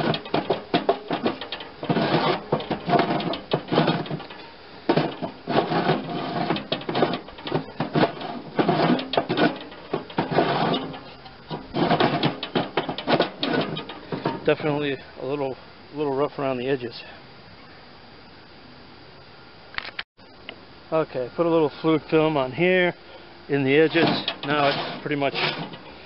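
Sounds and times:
metal chute scraping and clicking: 0.0s - 15.0s, 23.6s - 26.0s.

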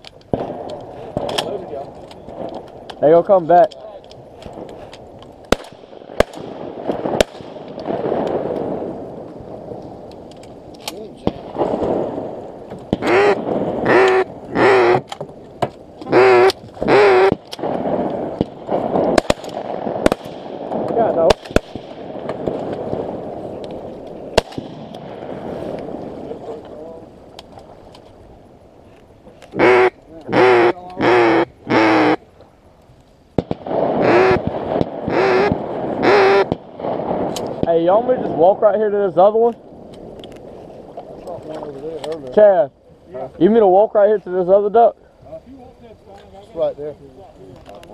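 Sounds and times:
duck call quacks: 13.0s - 15.1s, 16.1s - 17.4s, 29.6s - 32.2s, 34.0s - 34.4s, 35.1s - 36.5s.

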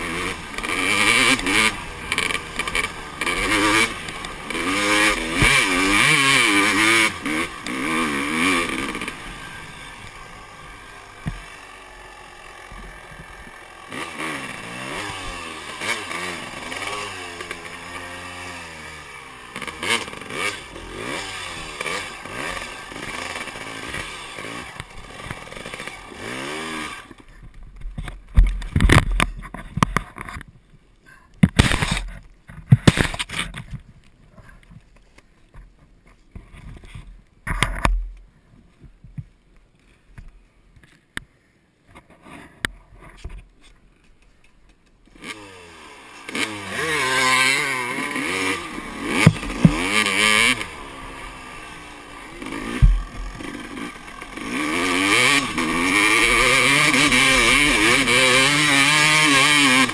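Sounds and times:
motocross bike engine revving: 0.0s - 27.4s, 45.1s - 59.9s
bike falling in sand: 31.5s - 33.8s.

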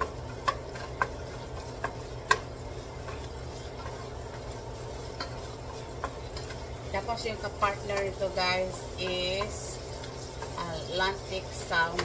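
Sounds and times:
bacon sizzling: 0.0s - 12.0s
wooden spatula tapping pot: 0.0s - 12.0s.

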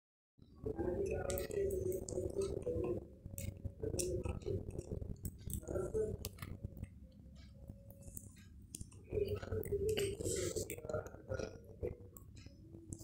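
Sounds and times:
murmur of voices: 9.0s - 12.1s.

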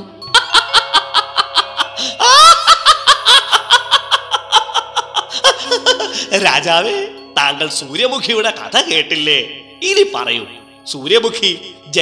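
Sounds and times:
background music with held notes: 0.0s - 12.0s
cartoon ghost cackling: 0.3s - 6.1s.

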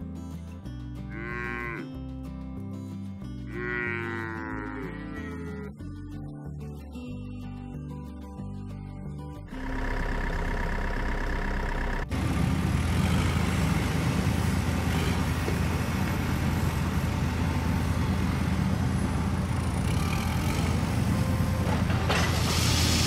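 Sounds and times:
heavy vehicle engine idling: 9.5s - 23.0s.

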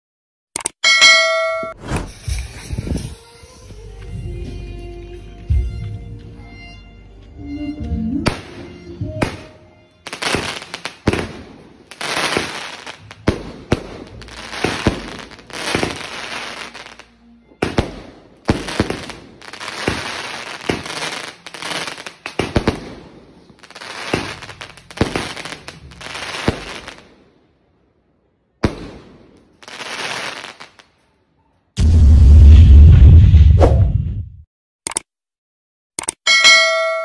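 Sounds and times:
firework shots popping and crackling: 8.3s - 17.0s, 17.6s - 27.2s, 28.6s - 30.8s.

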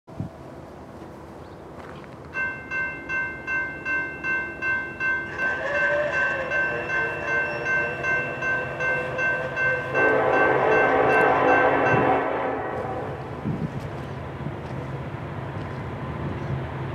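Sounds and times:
level-crossing bell ringing: 2.4s - 12.2s
locomotive horn: 5.3s - 13.4s.

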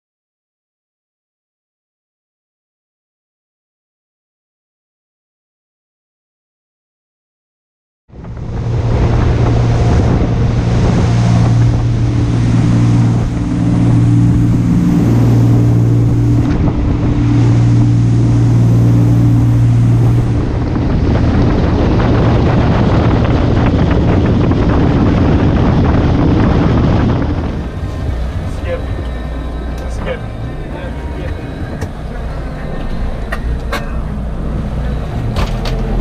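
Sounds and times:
boat engine drone: 8.1s - 36.0s
rush of boat wake: 8.1s - 36.0s
wind on microphone: 8.1s - 36.0s.

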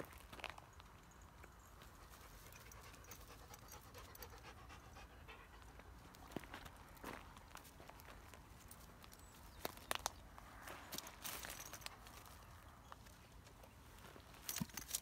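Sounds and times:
dogs panting faintly: 1.7s - 7.2s.

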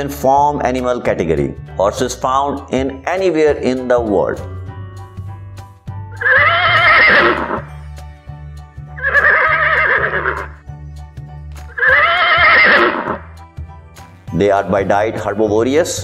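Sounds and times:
background music with low beat: 0.0s - 16.0s
horse whinnying: 6.2s - 7.7s, 9.0s - 10.6s, 11.7s - 13.3s.

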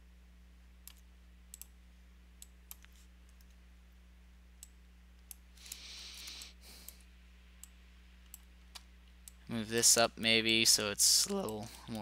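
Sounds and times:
steady low hum: 0.0s - 12.0s
computer mouse clicks: 0.8s - 1.7s, 2.4s - 3.6s, 4.6s - 7.0s.

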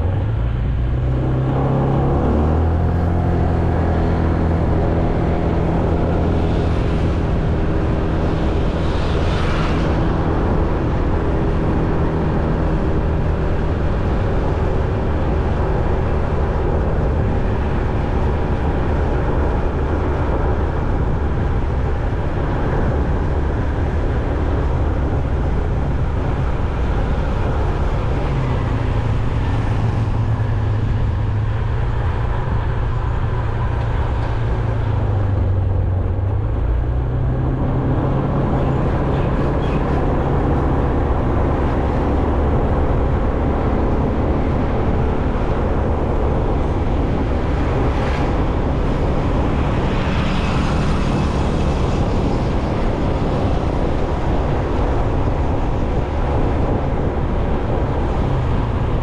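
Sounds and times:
road noise: 0.0s - 59.0s.

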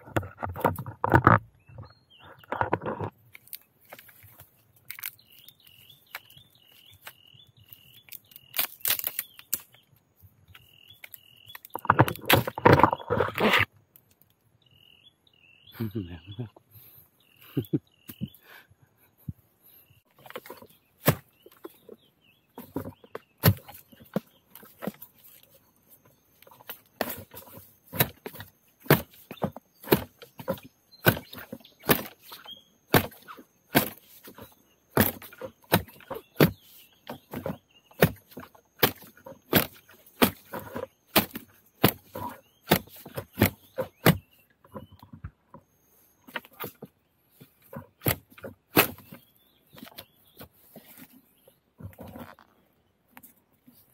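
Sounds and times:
blade chopping bamboo: 8.1s - 9.7s, 20.2s - 21.8s, 22.6s - 25.0s, 26.4s - 44.3s, 47.7s - 49.2s.

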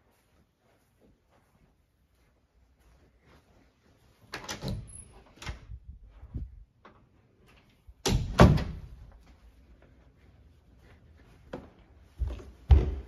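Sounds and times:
closet door banging shut: 8.0s - 9.0s.

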